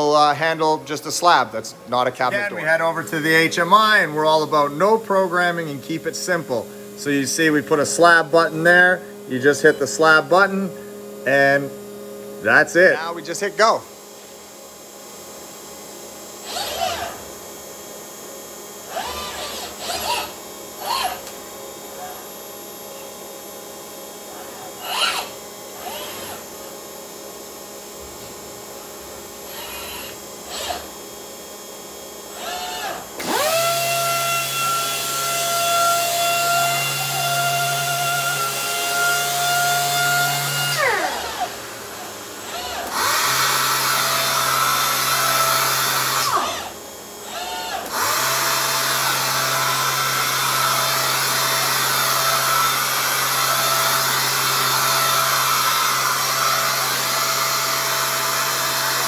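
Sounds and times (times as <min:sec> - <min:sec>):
orbital sander whine: 0:02.2 - 0:59.0
robot arm whirring: 0:16.4 - 0:17.3, 0:18.8 - 0:21.4, 0:24.7 - 0:26.7, 0:29.4 - 0:31.0, 0:32.3 - 0:41.6, 0:42.4 - 0:59.0.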